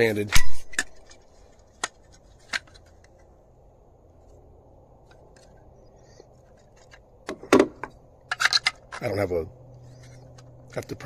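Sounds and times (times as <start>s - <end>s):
plastic parts being handled: 0.6s - 3.4s, 5.0s - 9.2s.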